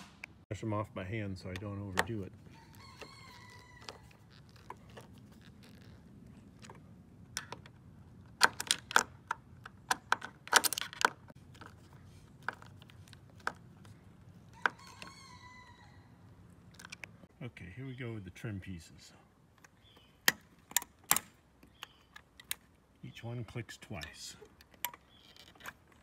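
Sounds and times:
distant rooster crowing: 2.5s - 4.2s, 14.5s - 16.2s.

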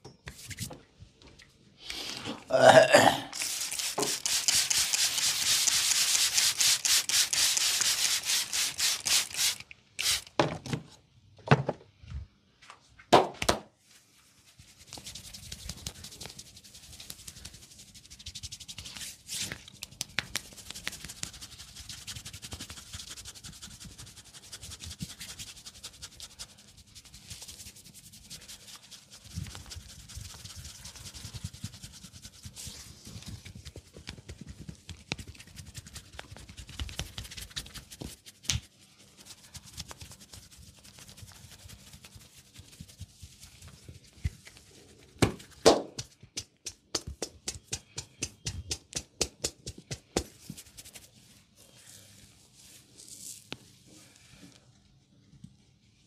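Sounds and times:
fingers rubbing hair and skin: 3.4s - 9.6s, 14.4s - 53.8s
sharp slaps: 13.1s - 13.7s, 45.2s - 50.3s.

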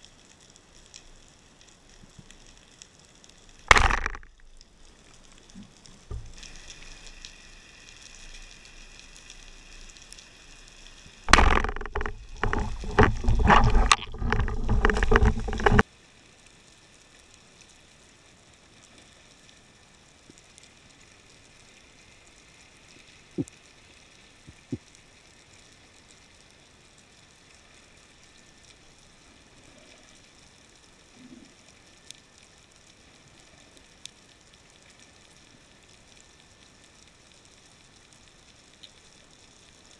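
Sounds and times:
rough underwater noise: 3.6s - 4.7s, 5.6s - 7.4s, 11.0s - 15.8s
underwater hiss: 6.1s - 11.3s
faint clicks: 37.4s - 39.8s.

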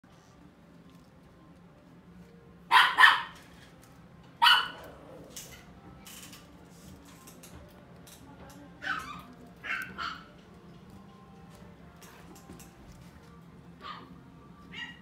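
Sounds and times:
puppy barking: 2.7s - 3.4s, 4.4s - 5.0s, 8.8s - 10.4s, 13.8s - 15.0s.

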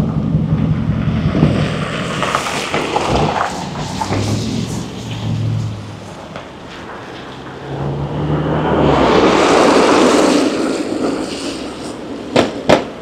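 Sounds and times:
vehicle passing by: 0.5s - 12.1s.

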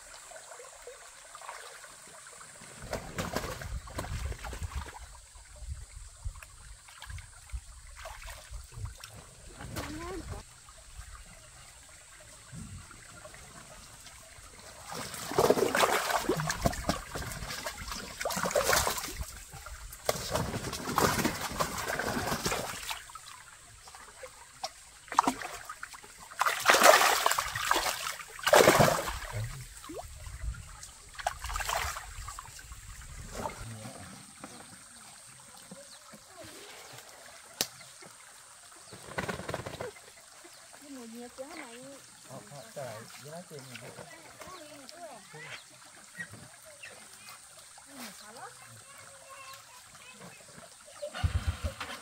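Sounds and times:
trickling water: 0.0s - 52.0s
hands splashing in water: 26.4s - 29.3s.

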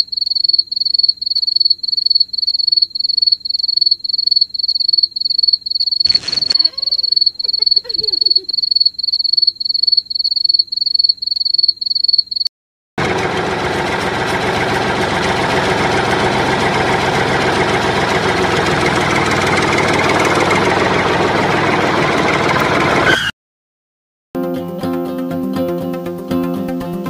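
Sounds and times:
cricket chirping: 0.0s - 12.5s
tractor engine running: 13.0s - 23.1s.

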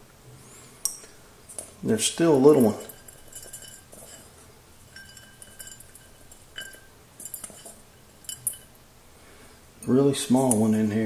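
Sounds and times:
clinks against metal bowl: 0.9s - 8.8s
metal bowl ringing: 2.0s - 8.8s.

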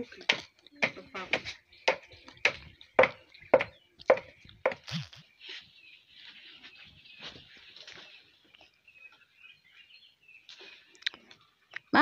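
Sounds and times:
wooden pestle pounding in a mortar: 0.3s - 4.8s.

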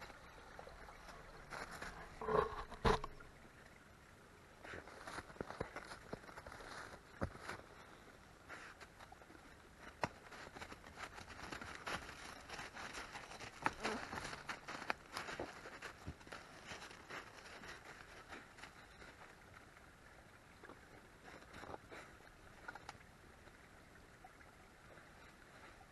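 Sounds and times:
footsteps crunching on a trail: 1.1s - 2.7s, 9.9s - 19.5s
crackles: 4.6s - 19.6s.

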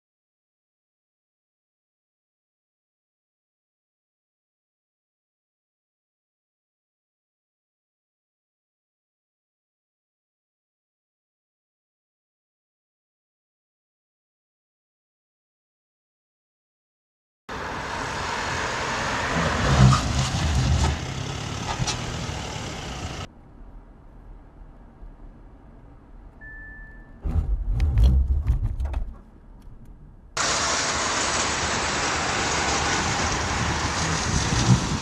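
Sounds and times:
low engine rumble: 17.5s - 35.0s
road and wind noise: 17.5s - 35.0s
short steady beep: 26.4s - 27.2s
wind noise on microphone: 27.2s - 30.2s, 33.1s - 35.0s.

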